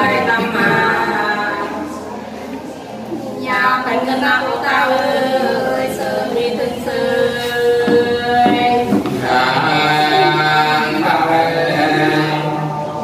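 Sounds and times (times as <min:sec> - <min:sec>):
two men singing unaccompanied: 0:04.9 - 0:13.0.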